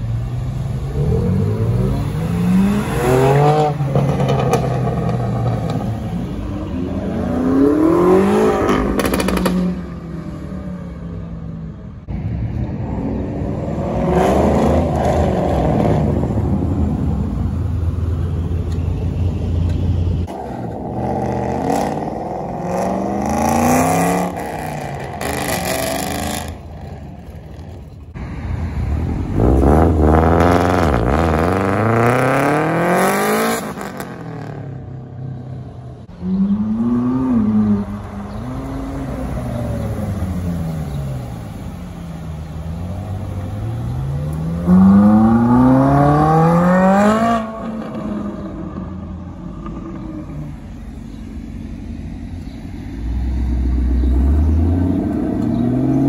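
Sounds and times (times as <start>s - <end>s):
car engine revving: 0.0s - 10.2s, 20.2s - 28.2s, 28.9s - 34.8s, 36.1s - 50.9s.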